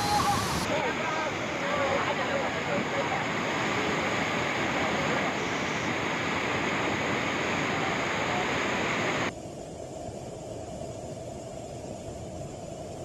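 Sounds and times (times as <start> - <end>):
floodwater rushing: 0.0 - 9.3.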